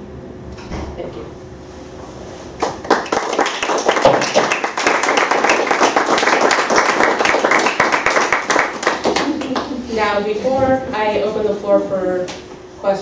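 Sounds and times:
audience applauding: 0:02.6 - 0:09.8.

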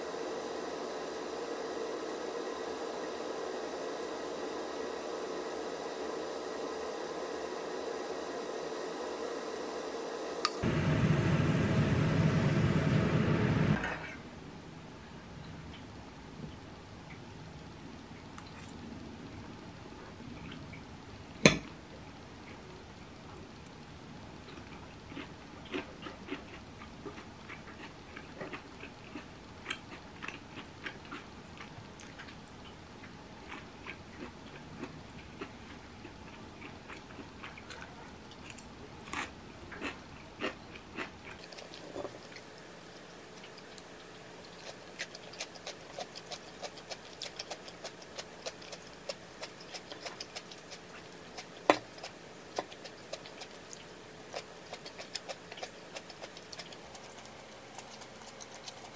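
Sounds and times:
chewing: 0:24.4 - 0:58.9.

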